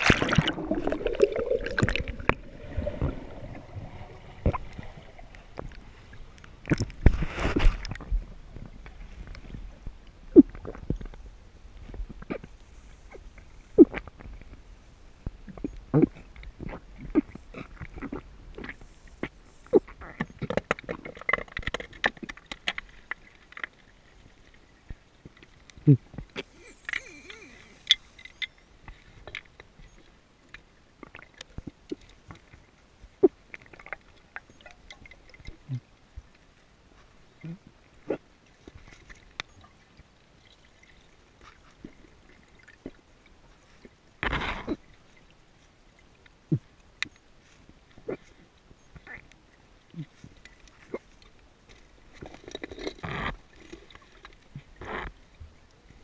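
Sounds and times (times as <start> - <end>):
small underwater clicks and knocks: 0.0 - 3.6, 4.3 - 56.0
rush of water: 0.0 - 9.3
underwater clicks and knocks: 6.4 - 11.2, 20.1 - 23.8.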